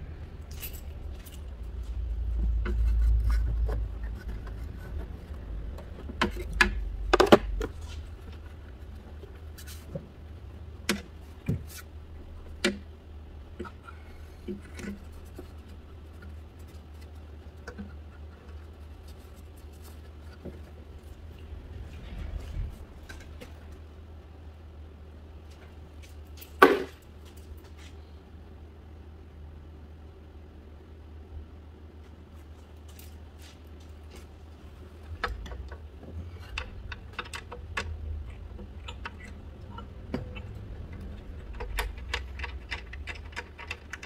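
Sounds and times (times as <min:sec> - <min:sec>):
low steady rumble: 0:00.0 - 0:44.0
light clicks and knocks: 0:35.1 - 0:44.0.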